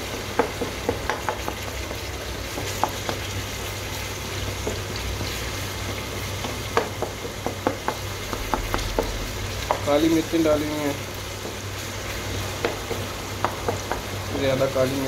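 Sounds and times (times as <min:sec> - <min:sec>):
food sizzling in pot: 0:00.0 - 0:15.0.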